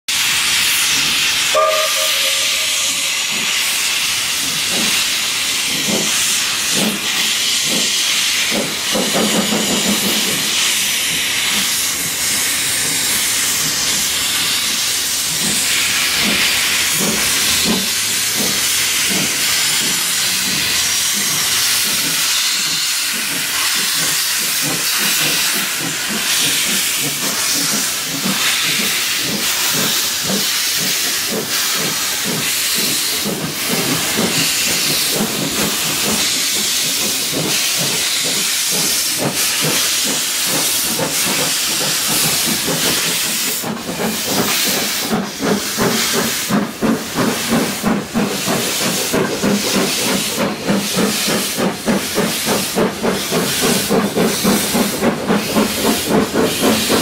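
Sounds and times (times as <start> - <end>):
loud steam hiss: 0.1 - 57.0
steam locomotive whistle: 0.3 - 3.8.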